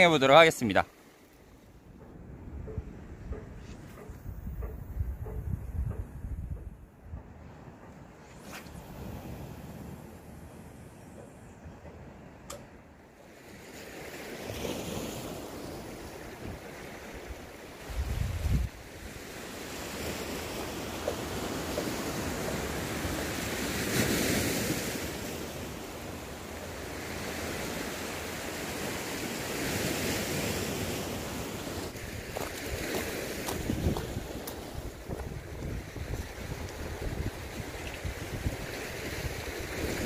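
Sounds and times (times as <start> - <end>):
sea surf washing against shore: 0.0 - 6.6, 7.2 - 40.0
wind on microphone: 2.2 - 7.5, 16.0 - 19.2, 31.7 - 40.0.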